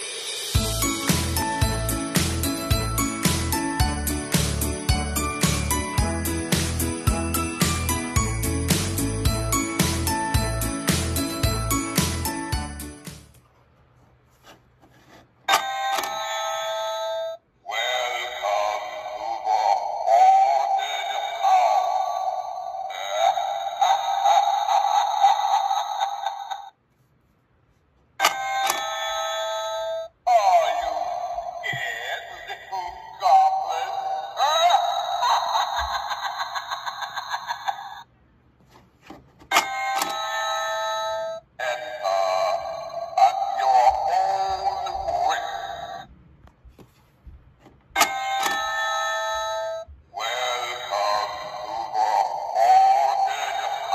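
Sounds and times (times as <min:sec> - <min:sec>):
distorted wavering voice: 0:17.6 - 0:26.7, 0:30.3 - 0:35.9, 0:41.6 - 0:46.1, 0:50.1 - 0:53.9
electronic doorbell chime: 0:48.0 - 0:49.9.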